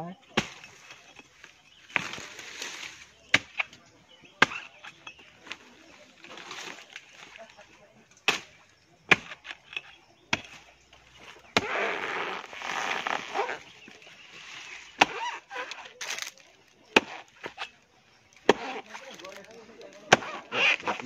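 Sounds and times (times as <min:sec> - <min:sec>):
metal blade chopping palm: 0:00.4 - 0:01.0, 0:03.3 - 0:03.8, 0:04.4 - 0:05.6, 0:08.2 - 0:10.7, 0:11.5 - 0:13.6, 0:15.0 - 0:16.4, 0:17.0 - 0:17.7, 0:18.4 - 0:19.1, 0:20.0 - 0:21.0.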